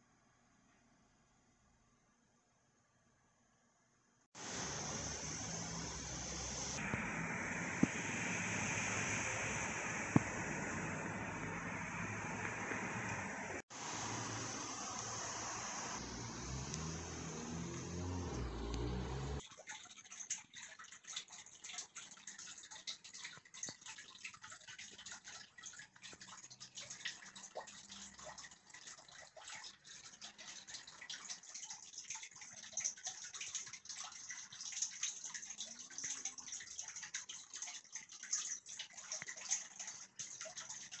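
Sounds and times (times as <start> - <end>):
low hum: 4.6 - 19.4.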